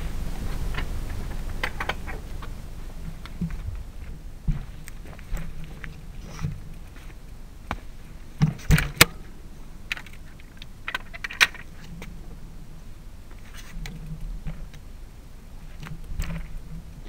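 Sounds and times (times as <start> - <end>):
low steady rumble: 0.0 - 17.0
bicycle clicks and rattles: 9.9 - 12.2.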